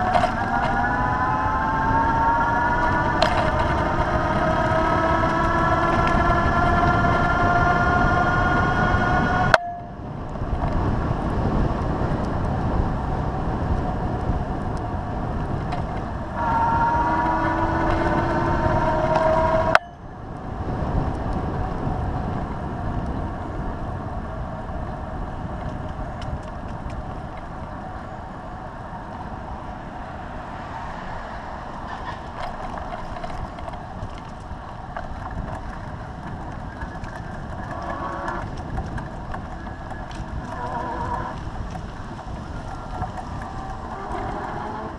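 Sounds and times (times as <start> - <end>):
pitched whine: 0.0 - 10.2, 15.6 - 20.2
bicycle road noise: 0.0 - 44.9
wind on microphone: 0.0 - 44.9.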